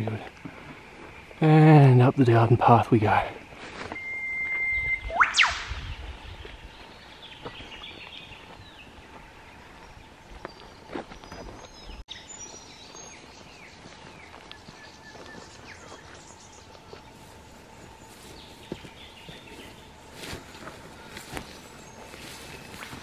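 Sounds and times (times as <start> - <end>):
faint steady tone: 0.2 - 5.8
footsteps in grass and scrub: 3.4 - 4.0, 6.0 - 23.0
birds chirping and whistling: 3.9 - 17.3, 17.9 - 23.0.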